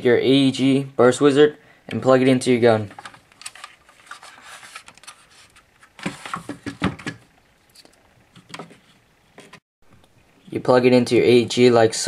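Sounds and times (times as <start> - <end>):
plastic and wire clicks and rustles: 2.9 - 8.8.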